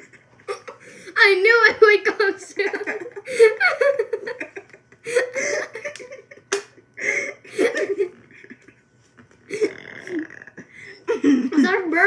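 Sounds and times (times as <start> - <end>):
giggling laughter: 2.6 - 8.8
girl burping: 9.5 - 10.6.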